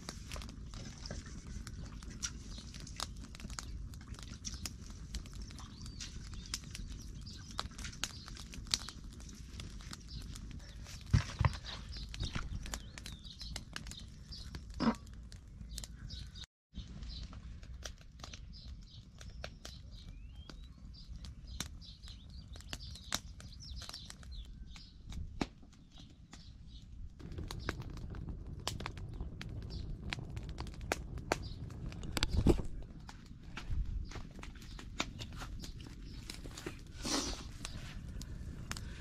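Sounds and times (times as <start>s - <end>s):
small birds chirping: 0.3s - 28.0s, 28.9s - 30.0s, 31.3s - 39.0s
low rumble: 27.2s - 34.6s.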